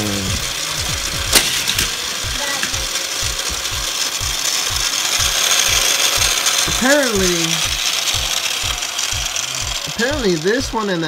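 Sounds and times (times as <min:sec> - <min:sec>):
low thumps: 0:00.0 - 0:06.9
toy cars rattling on plastic track: 0:00.0 - 0:11.0.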